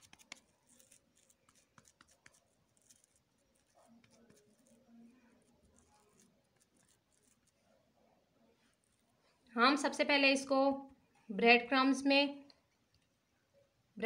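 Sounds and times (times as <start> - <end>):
hands patting food in breadcrumbs: 0.0 - 4.8.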